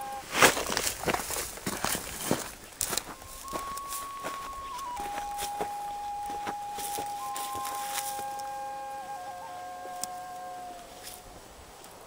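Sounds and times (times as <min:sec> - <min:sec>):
flute holding long notes: 0:00.0 - 0:00.5, 0:02.9 - 0:11.4
notes echoing off canyon walls: 0:02.6 - 0:11.5.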